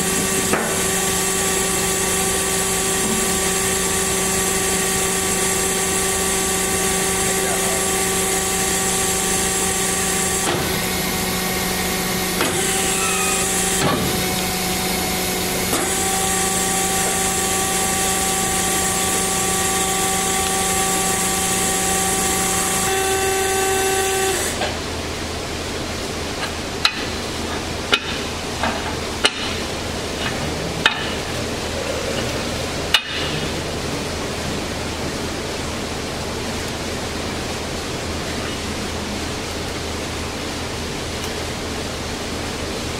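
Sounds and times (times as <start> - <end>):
band saw running: 0.0 - 39.0.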